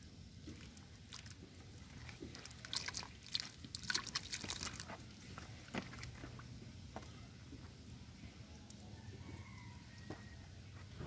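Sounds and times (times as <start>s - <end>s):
water trickling: 0.0s - 5.2s
fish splashing in muddy water: 0.4s - 4.9s.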